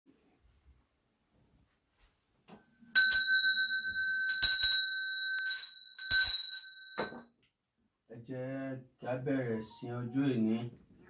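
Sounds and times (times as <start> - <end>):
small metal bell ringing: 2.9 - 7.4.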